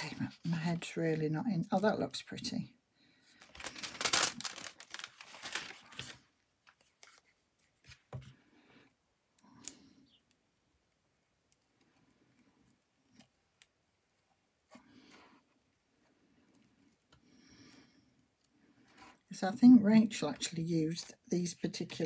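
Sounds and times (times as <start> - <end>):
paper rustling and tapping: 3.4 - 7.2.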